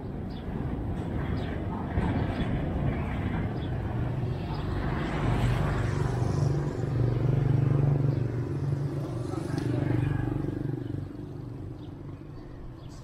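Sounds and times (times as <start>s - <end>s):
vehicle engine droning: 2.9s - 13.0s.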